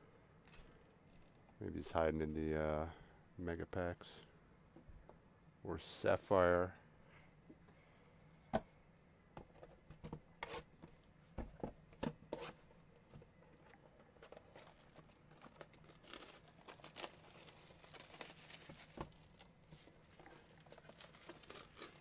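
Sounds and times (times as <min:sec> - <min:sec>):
plastic shrink wrap crinkling: 0:14.2 - 0:22.0.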